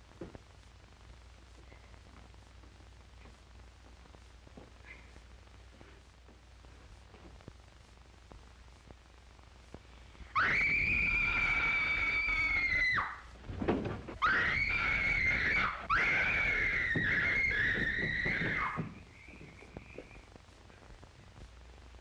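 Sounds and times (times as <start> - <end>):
girl screaming: 10.4 - 13.2, 14.2 - 18.8.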